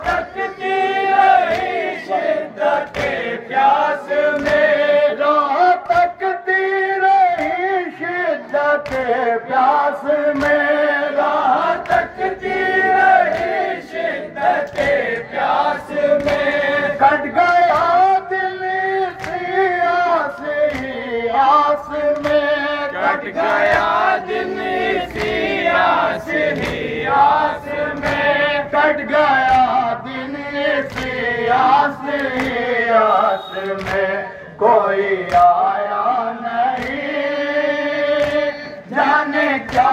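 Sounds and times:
men chanting a lament in unison: 0:00.0 - 0:39.9
chest-beating slaps: 0:02.9 - 0:03.2, 0:08.8 - 0:09.1, 0:20.6 - 0:21.0, 0:25.2 - 0:27.4, 0:30.9 - 0:31.2, 0:32.1 - 0:32.7, 0:33.6 - 0:34.1, 0:35.2 - 0:35.6, 0:36.7 - 0:37.1, 0:38.1 - 0:38.6.

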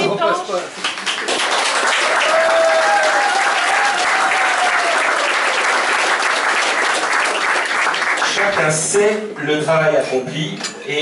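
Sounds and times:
crowd applauding: 0:00.8 - 0:08.9.

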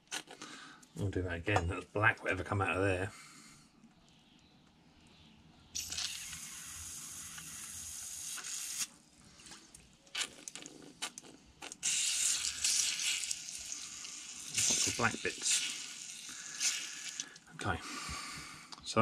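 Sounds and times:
aerosol spray hissing: 0:05.8 - 0:08.9, 0:11.8 - 0:17.2.

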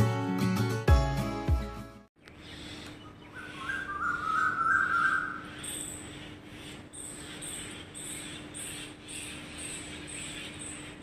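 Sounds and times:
bird warbling call: 0:02.2 - 0:11.0
steady low hum: 0:02.2 - 0:11.0.

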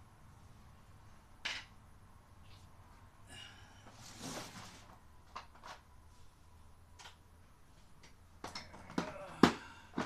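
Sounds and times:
rustle: 0:03.8 - 0:06.4.

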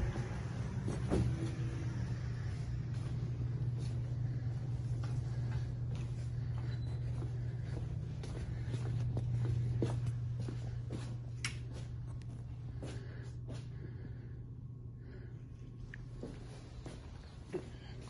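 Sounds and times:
low machine hum: 0:00.0 - 0:18.0
faint steps and taps: 0:02.9 - 0:13.7.

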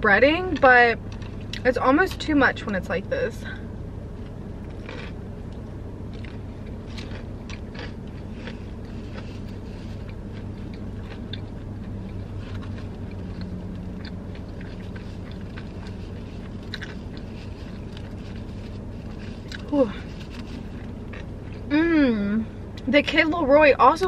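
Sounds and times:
steady low hum: 0:00.0 - 0:24.0
biting and chewing: 0:04.1 - 0:21.7.

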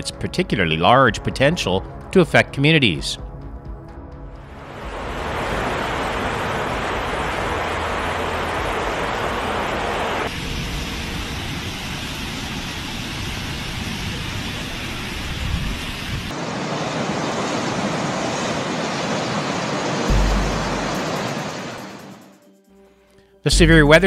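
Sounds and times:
deep rumble: 0:03.2 - 0:10.3, 0:20.1 - 0:21.9
floodwater rushing: 0:04.4 - 0:22.2.

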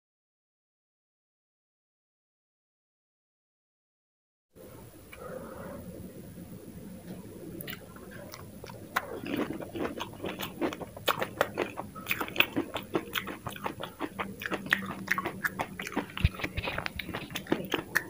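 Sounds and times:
mouth crunching fried snack: 0:07.6 - 0:18.0.

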